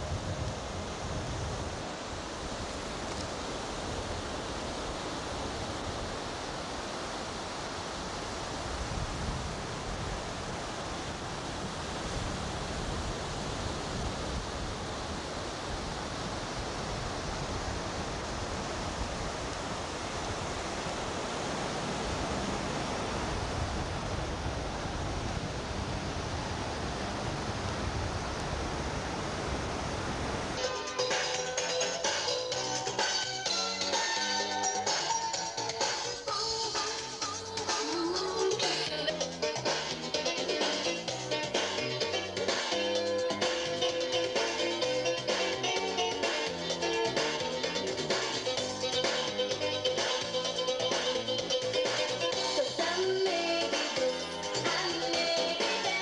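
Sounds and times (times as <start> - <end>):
wind buffeting microphone: 0.0 - 30.6.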